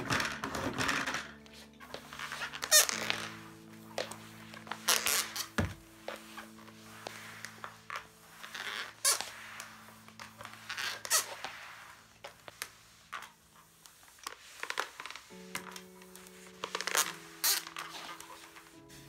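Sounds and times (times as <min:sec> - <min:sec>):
mop squeaks and clicks: 0:00.0 - 0:19.0
mop swishing on floor: 0:00.0 - 0:19.0.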